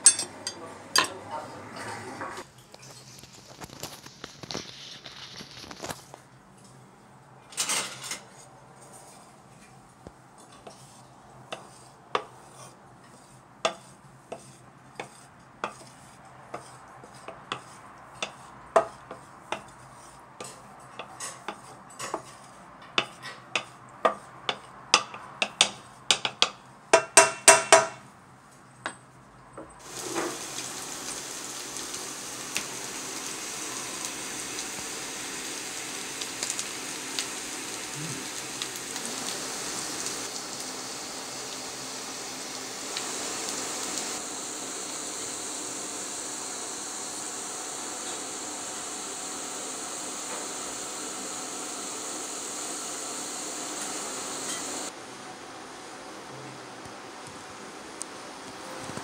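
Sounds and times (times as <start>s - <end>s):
spatula knocking in frying pan: 13.6s - 15.9s, 17.5s - 19.7s, 23.0s - 28.0s
vegetables sizzling in oil: 29.8s - 54.9s.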